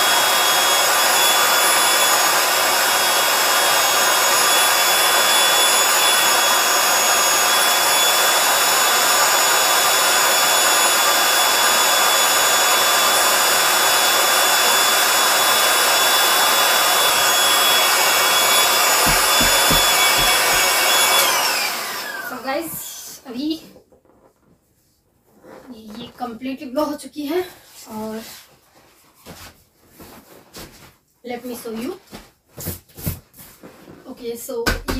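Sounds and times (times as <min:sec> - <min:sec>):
electric air pump whining: 0:00.0 - 0:23.6
soft low thumps: 0:19.0 - 0:20.7.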